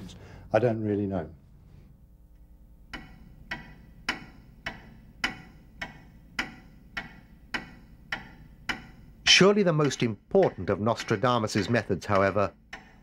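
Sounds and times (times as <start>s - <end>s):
clock ticking: 2.8s - 13.0s.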